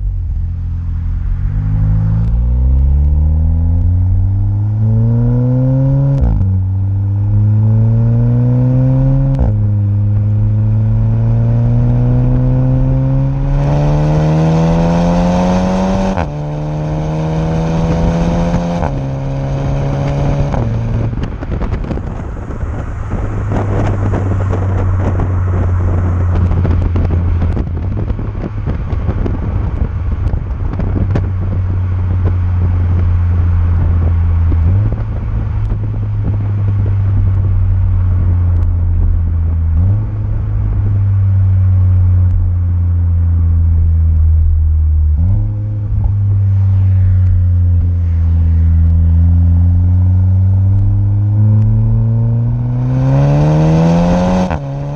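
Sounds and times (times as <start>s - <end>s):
car exhaust drone: 0.0s - 54.9s
road and wind noise: 0.0s - 54.9s
engine revs jumping: 50.8s - 54.9s.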